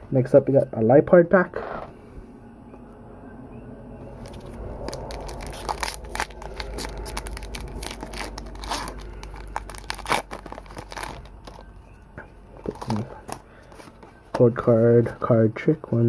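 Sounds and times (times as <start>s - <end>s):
foil wrapper tearing: 4.2s - 11.6s, 12.6s - 13.4s.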